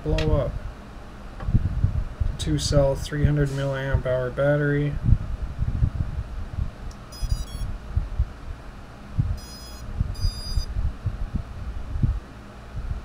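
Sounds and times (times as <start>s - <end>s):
drone motors beeping: 7.1s - 7.7s, 9.4s - 10.7s.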